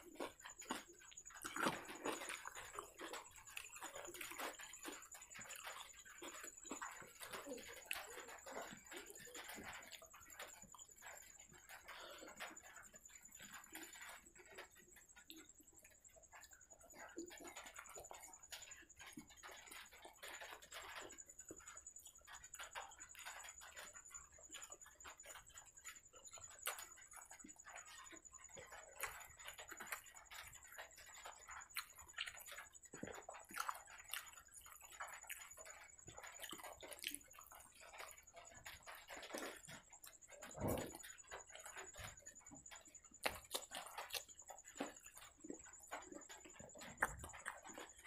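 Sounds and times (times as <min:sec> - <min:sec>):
chewing and wet mouth clicks: 0:00.0 - 0:48.0.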